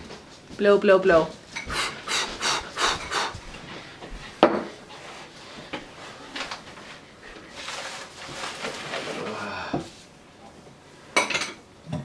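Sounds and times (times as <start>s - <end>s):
child blowing on food: 1.7s - 3.4s.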